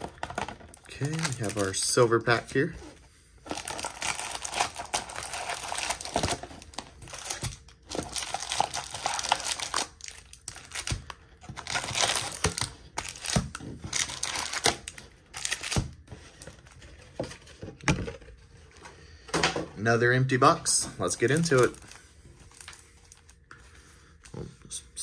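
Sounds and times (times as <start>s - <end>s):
foil wrappers crinkling: 0.0s - 2.7s, 3.4s - 15.8s, 21.0s - 23.8s.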